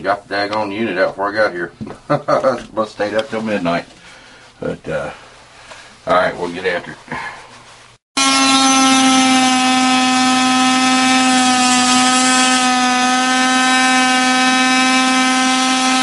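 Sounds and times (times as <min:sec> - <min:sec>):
oscillating tool cutting drywall: 0:08.2 - 0:16.0.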